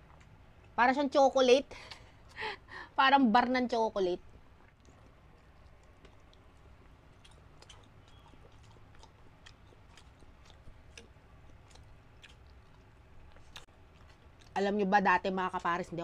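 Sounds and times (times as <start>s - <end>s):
people chewing: 4.4s - 16.0s.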